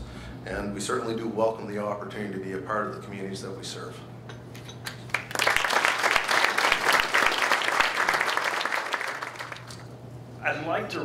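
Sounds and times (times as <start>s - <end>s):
audience applauding: 5.1s - 9.9s.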